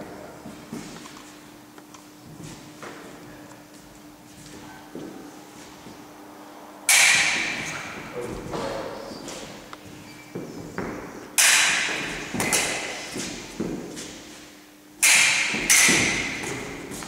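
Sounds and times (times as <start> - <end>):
fencing blades striking: 6.9 - 8.1, 10.8 - 17.0
feet stamping on wooden floor: 9.3 - 11.2, 11.9 - 14.3.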